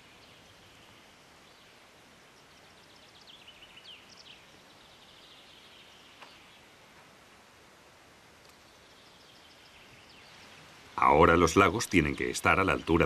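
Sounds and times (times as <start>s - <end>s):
soft outdoor hiss: 0.0s - 13.0s.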